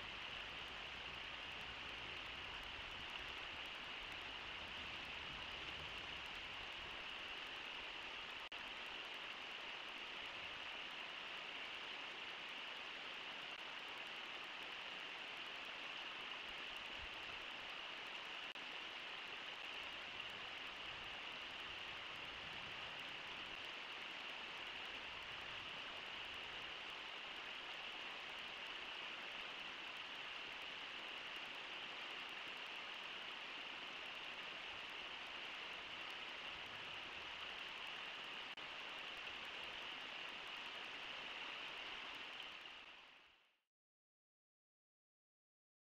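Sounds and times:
river rushing over rocks: 0:00.1 - 0:42.9.

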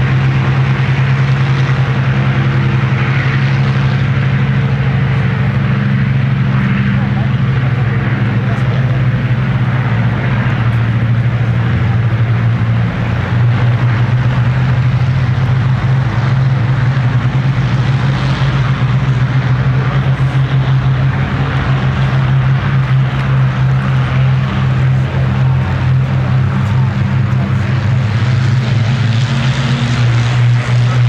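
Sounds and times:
aircraft piston engines droning: 0:00.0 - 0:31.0.

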